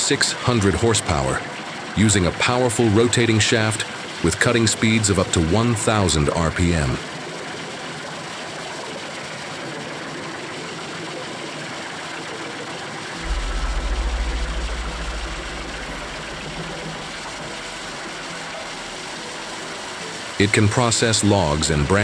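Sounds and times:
deep rumble: 13.2s - 19.6s.

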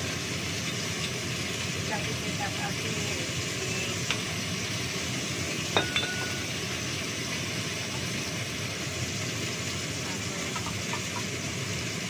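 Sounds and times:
range hood fan whirring: 0.0s - 12.0s
glass bottle and dishes clinking: 5.7s - 6.5s.

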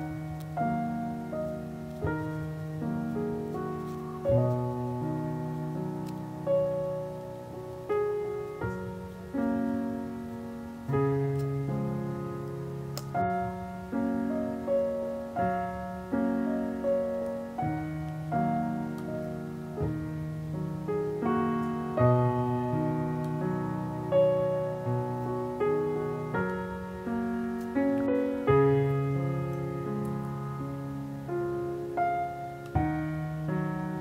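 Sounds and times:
piano chords ringing: 0.0s - 34.0s.

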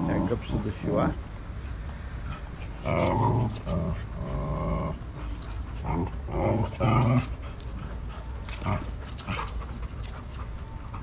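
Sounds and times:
dogs growling: 2.3s - 10.2s.

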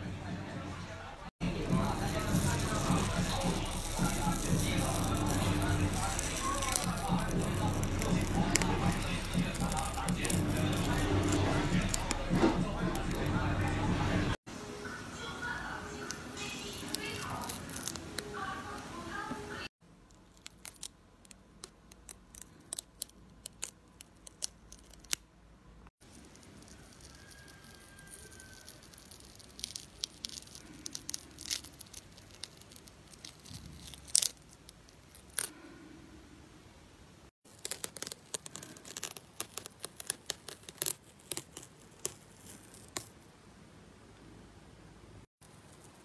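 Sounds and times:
peel-off mask crackling and tearing: 1.5s - 14.3s, 16.5s - 18.8s, 19.9s - 25.3s, 26.0s - 35.7s, 37.4s - 43.3s.

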